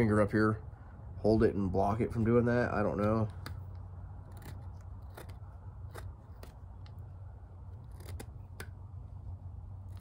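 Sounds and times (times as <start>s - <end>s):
steady low hum: 0.0s - 10.0s
knife scraping wood: 3.3s - 9.0s.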